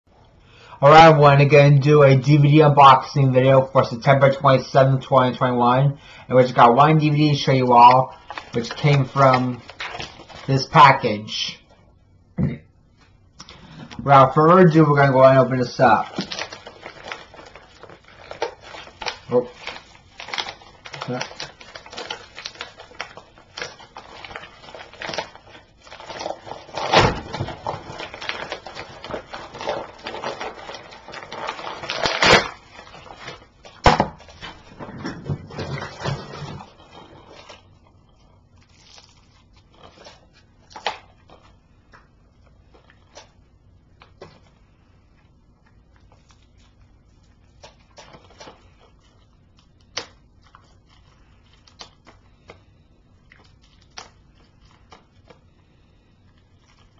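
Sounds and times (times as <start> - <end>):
padded mailer tearing: 15.9 - 34.7.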